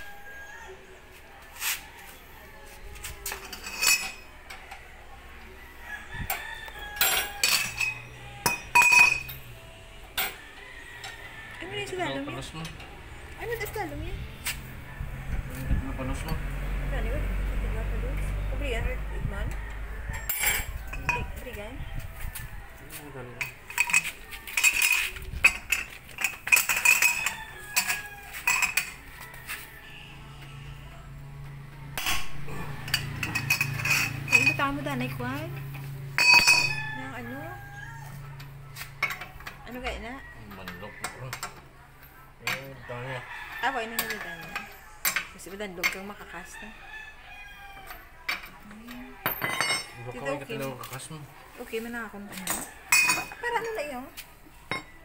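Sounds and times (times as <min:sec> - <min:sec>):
metal wrench clinking on wheel nut: 0:03.2 - 0:04.3, 0:07.0 - 0:09.5, 0:32.0 - 0:34.6, 0:36.2 - 0:36.8
wrench clinking on lug nuts: 0:07.0 - 0:09.5, 0:36.2 - 0:36.8.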